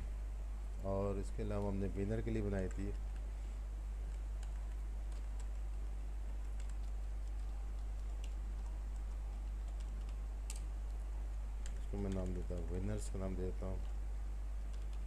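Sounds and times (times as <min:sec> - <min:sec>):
steady low hum: 0:00.0 - 0:15.0
keyboard typing clicks: 0:04.1 - 0:10.7, 0:11.6 - 0:12.8, 0:14.7 - 0:15.0.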